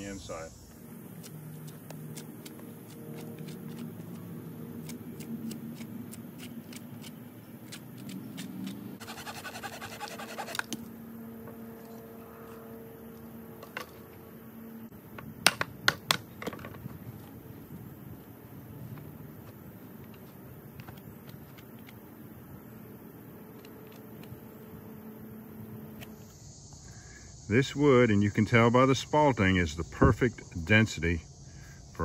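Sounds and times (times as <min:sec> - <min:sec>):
hand tools scraping wood: 0:01.2 - 0:10.8.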